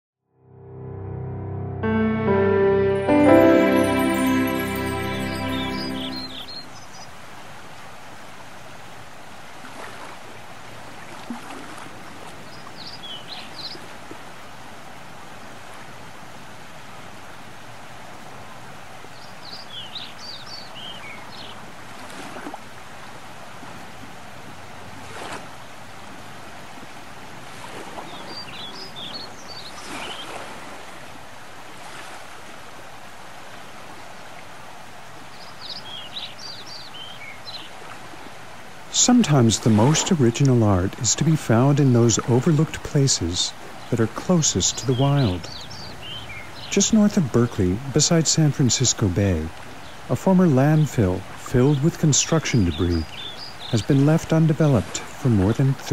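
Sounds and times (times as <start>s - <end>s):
high bird chirps: 3.5s - 6.9s
small waves washing on shore: 7.3s - 19.1s, 21.2s - 36.0s, 37.3s - 47.8s.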